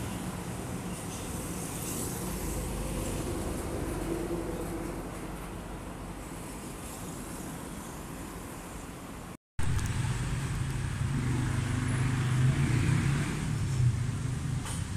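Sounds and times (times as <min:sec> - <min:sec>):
street traffic noise: 0:00.0 - 0:14.9
motor scooter passing: 0:10.0 - 0:14.0.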